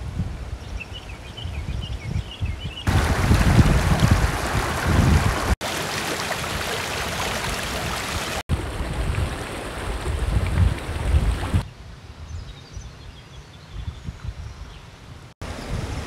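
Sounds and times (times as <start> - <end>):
river rushing over rocks: 2.9 - 8.8.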